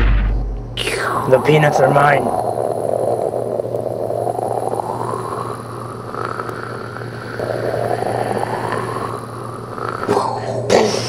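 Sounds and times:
loud crash: 0:00.0 - 0:00.8.

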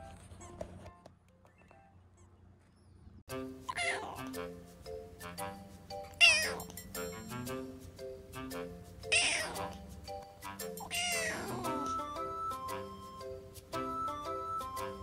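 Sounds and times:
background music of held notes: 0:03.3 - 0:15.0
kitten meowing: 0:03.7 - 0:04.2, 0:06.2 - 0:06.7, 0:09.1 - 0:09.8, 0:10.8 - 0:11.9.

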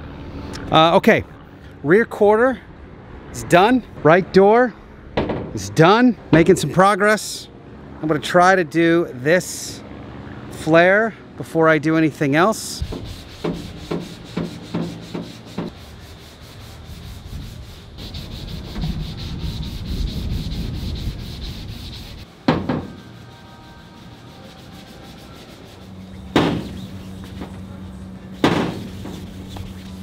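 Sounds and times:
sharp knocks: 0:05.2 - 0:05.6, 0:22.4 - 0:23.0, 0:26.3 - 0:26.8, 0:28.4 - 0:29.2
sandpaper rasping back and forth: 0:12.4 - 0:22.3, 0:23.0 - 0:30.0.

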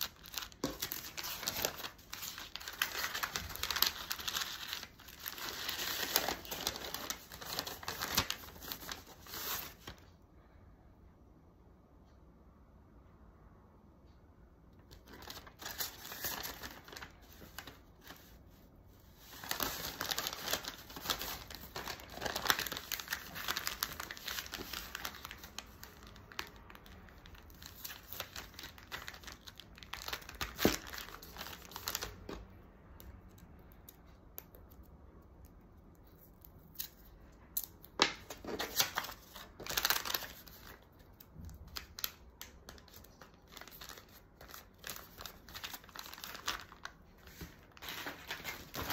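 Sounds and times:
paper bag rustling and crinkling: 0:00.0 - 0:10.0, 0:15.0 - 0:18.4, 0:19.1 - 0:32.3, 0:38.4 - 0:40.9, 0:41.6 - 0:48.9.

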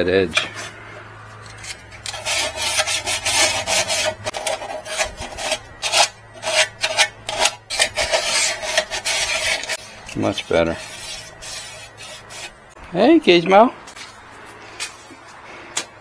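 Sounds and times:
hand file rasping: 0:01.4 - 0:12.6.

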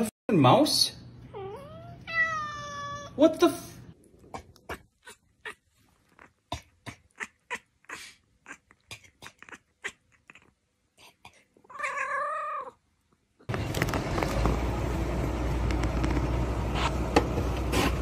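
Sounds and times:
cat meowing: 0:01.3 - 0:03.2, 0:11.7 - 0:12.8
loud steady outdoor noise: 0:13.5 - 0:18.0.

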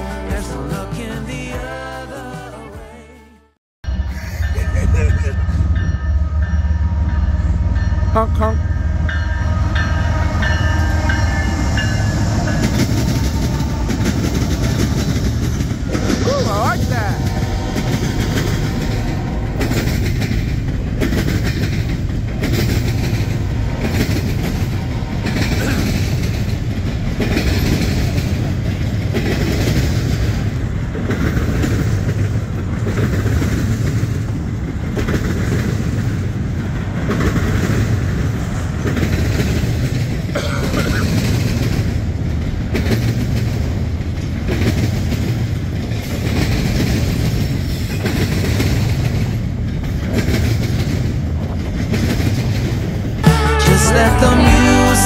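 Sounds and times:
freight train rumble: 0:00.0 - 0:55.0
wheels clacking over rail joints: 0:11.8 - 0:53.2.

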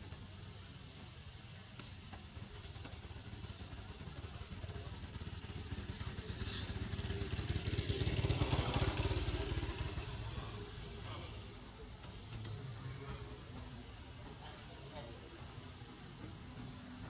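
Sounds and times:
vehicle engine passing by: 0:05.6 - 0:14.5.

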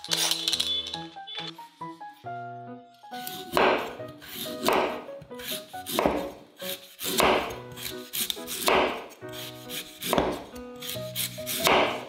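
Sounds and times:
soft background music: 0:00.0 - 0:12.0
knife slicing on wooden board: 0:03.2 - 0:12.0.

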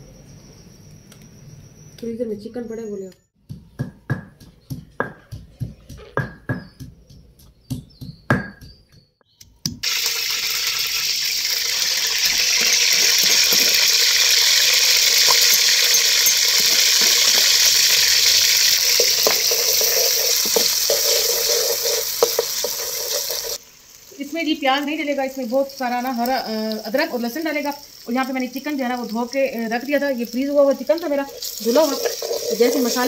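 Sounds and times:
wooden pestle pounding in stone mortar: 0:03.4 - 0:09.1
paste sizzling in hot oil: 0:09.8 - 0:33.0.

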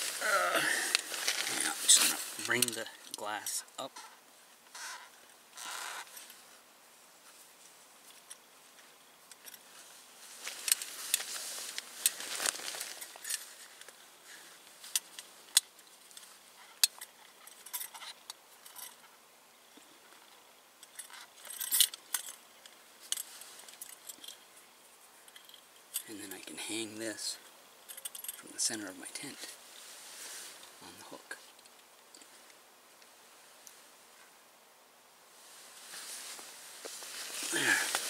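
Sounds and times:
rustling: 0:00.0 - 0:34.4, 0:35.2 - 0:38.0
metal lantern clinking and rattling: 0:14.9 - 0:19.0, 0:20.8 - 0:24.5, 0:27.8 - 0:28.4.

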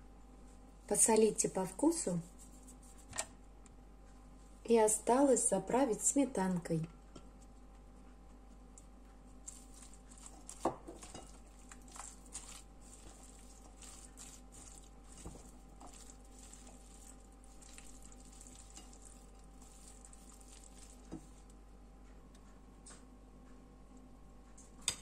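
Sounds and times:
wet squelches of stirring: 0:00.6 - 0:03.4, 0:07.1 - 0:21.6
spatula scraping glass bowl: 0:09.5 - 0:21.4.

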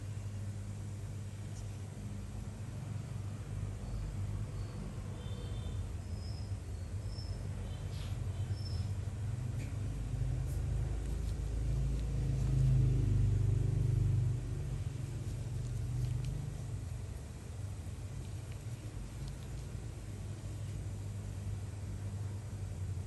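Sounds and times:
low background rumble: 0:08.5 - 0:23.0.

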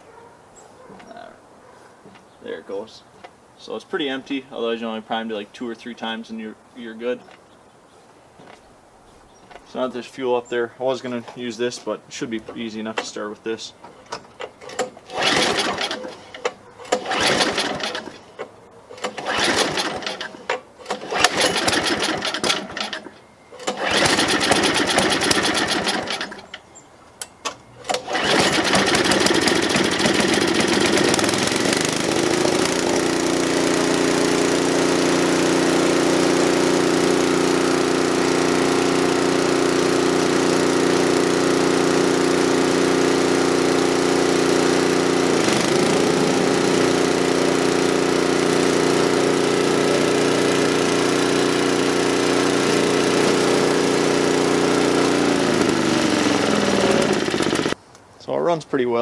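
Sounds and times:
recoil starter cord pulls: 0:14.0 - 0:26.6, 0:27.2 - 0:57.8
snowblower engine running: 0:14.6 - 0:26.6, 0:27.8 - 0:57.8.

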